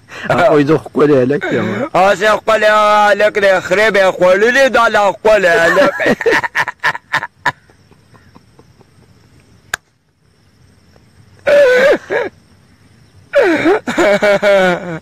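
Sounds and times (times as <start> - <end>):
man laughing: 0.1 - 0.6, 1.4 - 1.9, 5.4 - 9.2, 11.5 - 12.4, 13.3 - 15.0.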